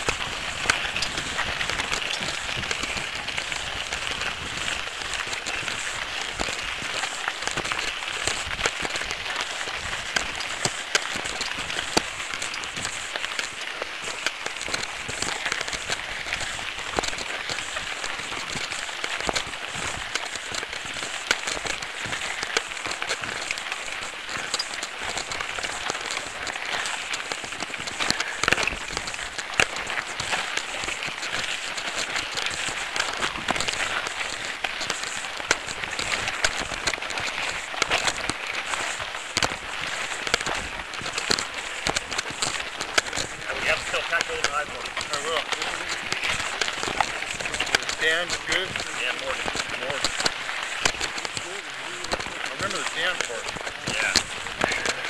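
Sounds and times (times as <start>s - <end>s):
bike rattling: 0.0s - 55.0s
tyres crunching on gravel: 0.0s - 55.0s.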